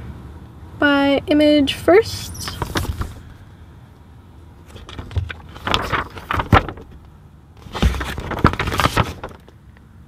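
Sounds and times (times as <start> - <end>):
low steady rumble: 0.0 - 10.0
paper pages rustling: 2.3 - 3.4, 4.6 - 9.6.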